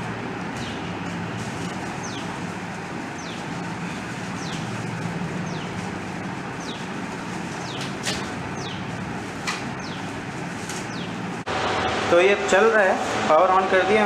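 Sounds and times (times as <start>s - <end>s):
fan rushing air and humming: 0.0s - 14.0s
bird chirping: 2.0s - 2.3s, 3.2s - 4.8s, 5.4s - 5.8s, 6.6s - 6.9s, 7.5s - 9.0s, 9.8s - 10.1s, 10.8s - 11.2s.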